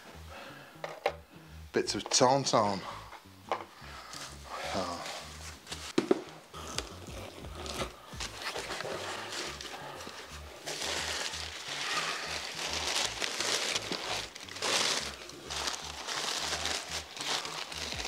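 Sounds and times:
paper packing rustling: 6.6s - 18.0s.

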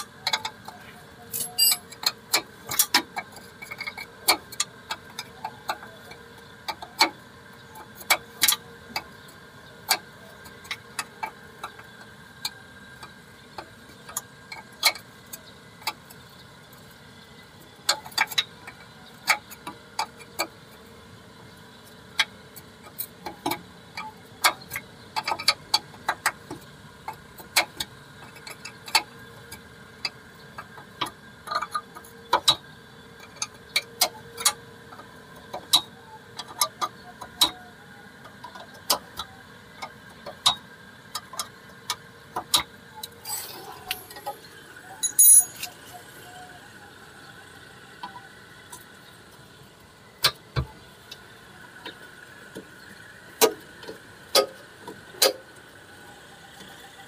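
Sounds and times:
tools and metal parts clinking: 0.3s - 3.0s, 45.0s - 45.7s.

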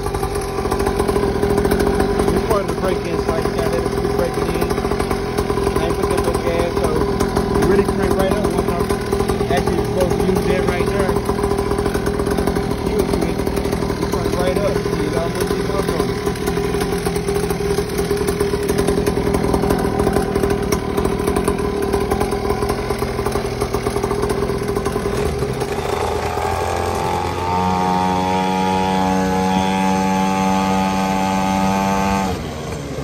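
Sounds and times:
motorbike engine idling and revving: 0.0s - 33.0s.

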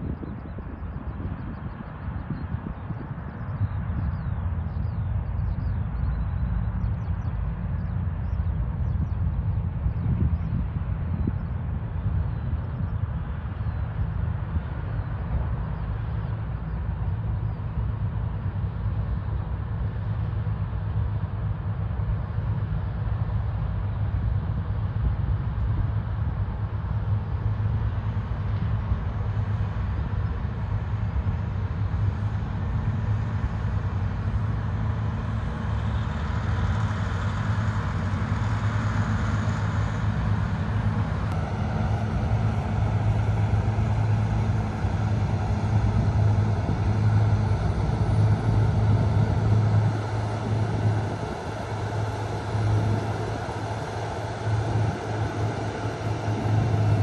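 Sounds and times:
diesel engine droning: 26.0s - 57.0s.

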